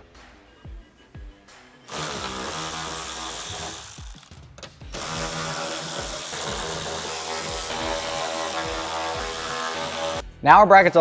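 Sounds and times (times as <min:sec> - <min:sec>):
background music with steady beat: 0:00.0 - 0:11.0
cordless drill spinning: 0:01.9 - 0:10.2.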